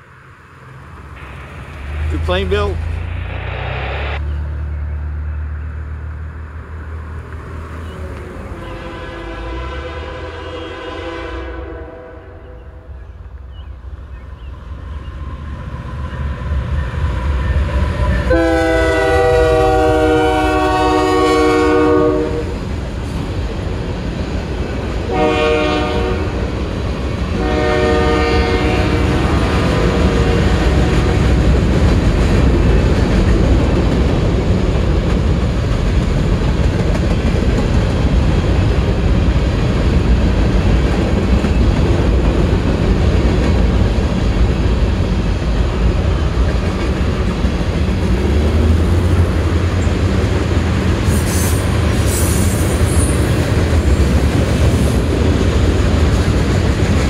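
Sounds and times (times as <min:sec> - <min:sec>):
freight train rolling on rails: 0:00.0 - 0:57.0
locomotive horn blasts: 0:08.6 - 0:12.8, 0:18.3 - 0:22.6, 0:25.1 - 0:26.4, 0:27.4 - 0:29.2.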